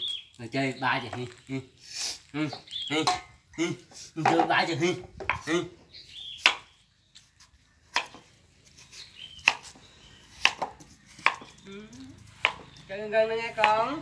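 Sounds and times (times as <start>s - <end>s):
knife chopping on wooden board: 9.4s - 9.7s, 10.4s - 11.5s.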